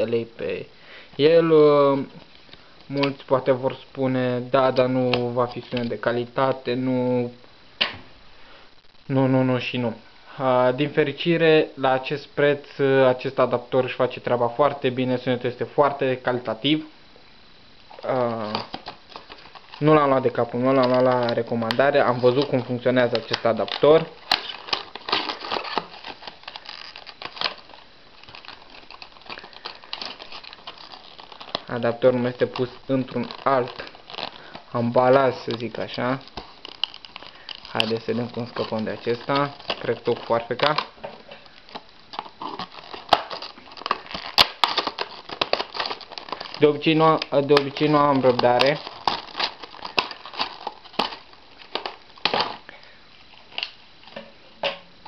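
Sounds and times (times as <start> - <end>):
plastic packaging crinkling: 1.2 - 6.8, 17.9 - 54.8.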